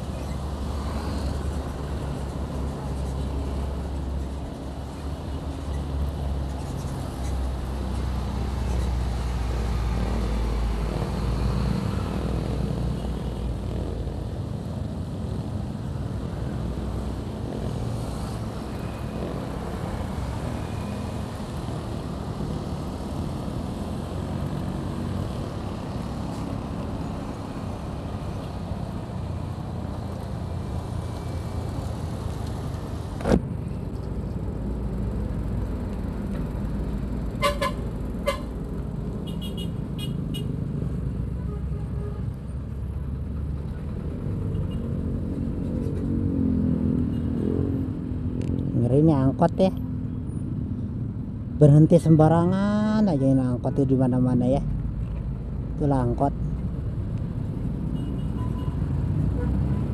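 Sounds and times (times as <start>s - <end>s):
wind and road noise: 0.0s - 59.9s.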